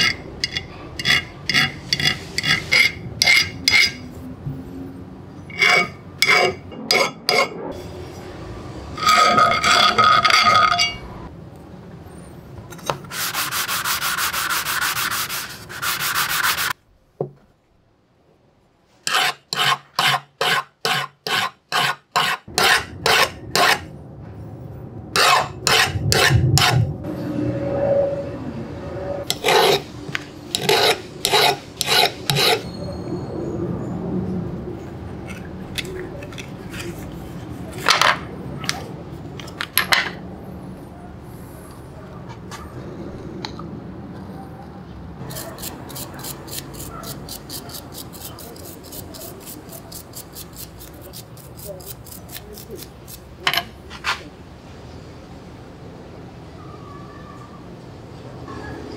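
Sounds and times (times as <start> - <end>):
file rasping on steel blade: 0.0 - 4.0, 5.5 - 7.5, 13.0 - 16.8, 19.0 - 23.9, 25.2 - 26.8, 29.3 - 29.9, 30.5 - 32.7, 45.2 - 53.3.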